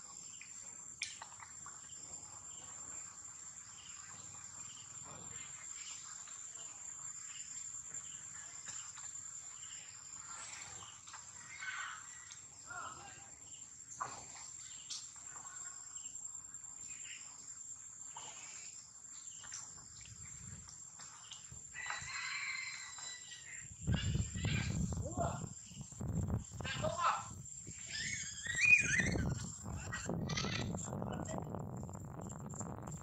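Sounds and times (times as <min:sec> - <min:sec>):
high-pitched insect drone: 0:23.9 - 0:33.0
voice-like calls: 0:26.6 - 0:31.5
short chirps and squeaks: 0:27.8 - 0:30.8.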